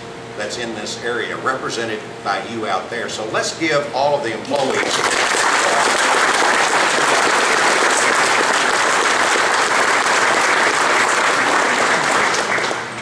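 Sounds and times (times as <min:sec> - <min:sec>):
crowd applauding: 0:04.6 - 0:13.0.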